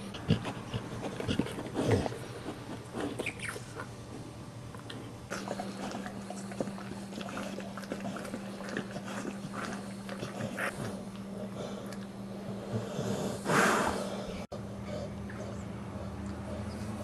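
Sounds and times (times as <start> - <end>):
dog licking: 4.9 - 12.1.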